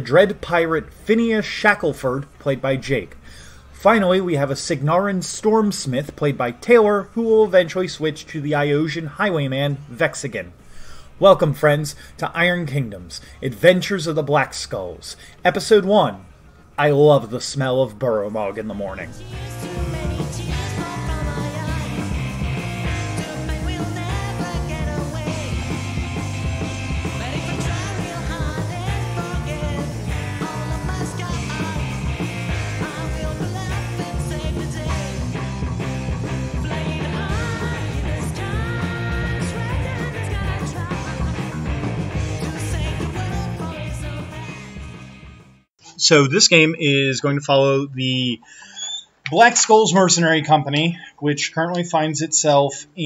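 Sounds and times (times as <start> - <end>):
theme music with driving beat: 19.3 - 45.6.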